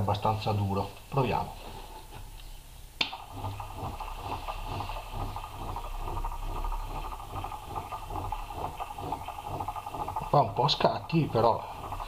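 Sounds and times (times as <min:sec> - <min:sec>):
small motor humming: 0:03.2 - 0:12.0.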